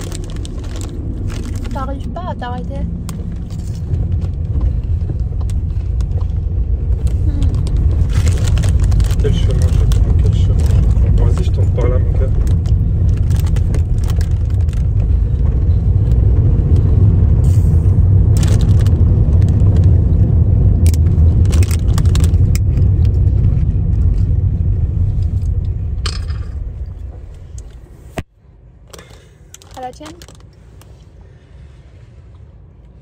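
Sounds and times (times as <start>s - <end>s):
plastic bottle crackling: 0.0s - 2.1s, 7.2s - 14.9s, 18.3s - 20.0s
car cabin road rumble: 0.0s - 33.0s.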